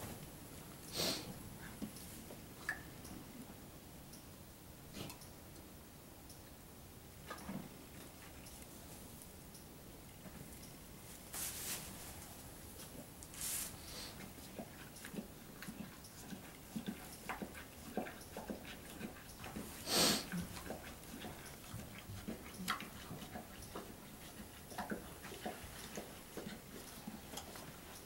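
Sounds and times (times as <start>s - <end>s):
horse blowing air: 0.9s - 1.4s, 19.7s - 20.5s
straw bedding rustling: 11.1s - 12.2s.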